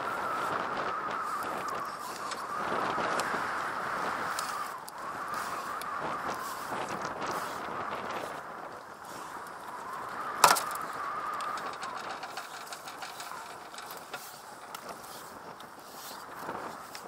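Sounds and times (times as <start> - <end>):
rope creaking on wooden drum: 4.3 - 17.0.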